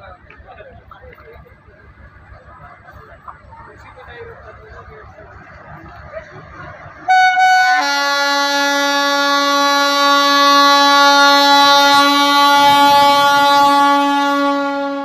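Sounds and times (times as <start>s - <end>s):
locomotive air horn blast: 7.1s - 15.0s.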